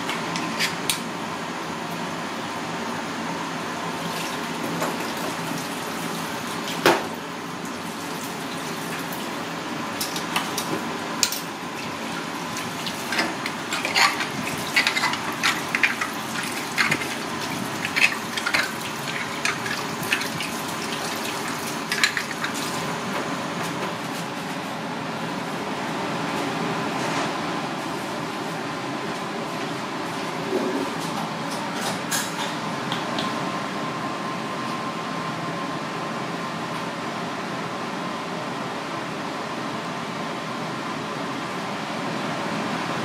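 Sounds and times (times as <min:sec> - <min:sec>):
tap water running into sink: 0:12.6 - 0:22.7.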